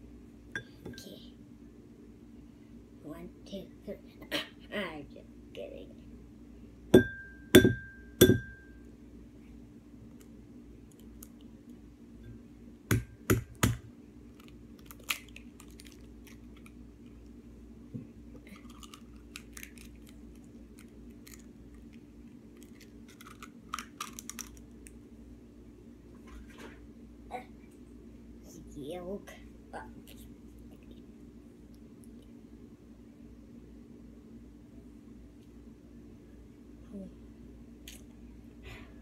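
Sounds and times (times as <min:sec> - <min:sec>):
egg tapping on ceramic dish: 0:07.0 - 0:08.6.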